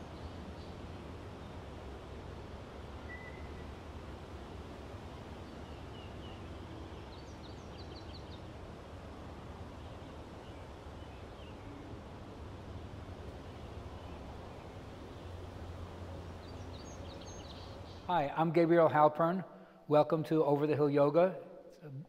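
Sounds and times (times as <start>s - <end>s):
low background rumble: 0.0s - 19.7s
birdsong trill: 2.8s - 8.6s, 9.7s - 12.3s, 13.3s - 18.2s
bird chirps: 3.0s - 3.6s, 16.3s - 18.1s.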